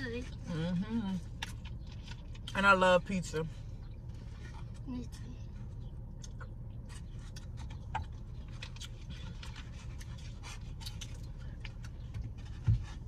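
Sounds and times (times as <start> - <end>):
steady low hum: 0.0 - 13.0
person chewing with smacking clicks: 6.1 - 12.3.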